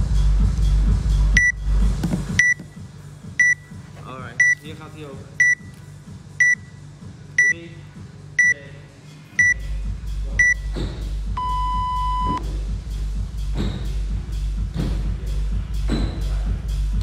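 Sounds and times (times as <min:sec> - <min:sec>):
music with steady beat: 0:00.0 - 0:17.0
countdown timer beeping: 0:01.4 - 0:01.6, 0:02.4 - 0:02.6, 0:03.4 - 0:03.7, 0:05.4 - 0:05.6, 0:06.4 - 0:06.7, 0:08.4 - 0:08.6, 0:09.4 - 0:09.7, 0:10.4 - 0:10.7, 0:11.4 - 0:12.4
long low beep: 0:11.4 - 0:12.4.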